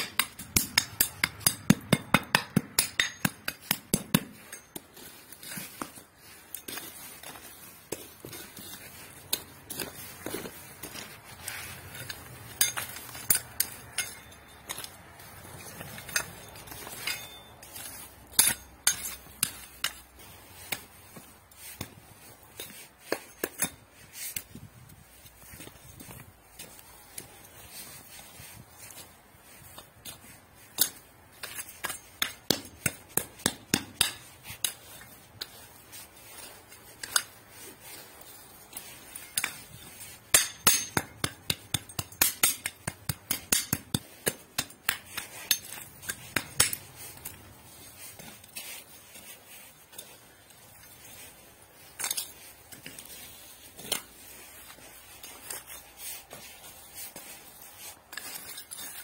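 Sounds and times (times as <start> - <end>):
trowel clinking on stones: 0.0 - 20.8, 30.1 - 35.7, 36.4 - 37.4, 38.7 - 47.4, 49.9 - 55.8, 58.1 - 59.0.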